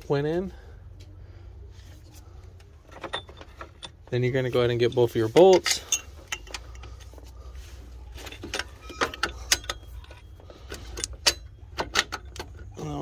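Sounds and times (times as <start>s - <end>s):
metal bolts clicking and clinking: 2.6s - 7.3s, 8.1s - 12.8s.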